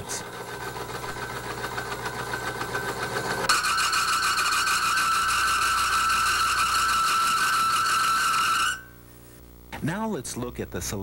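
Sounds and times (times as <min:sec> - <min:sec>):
high-pitched metal-on-metal squeal: 0:03.5 - 0:09.0.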